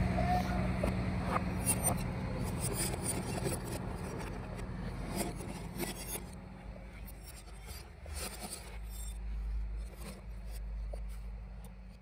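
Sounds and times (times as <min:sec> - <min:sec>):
light scraping and rubbing: 0:01.6 - 0:11.4.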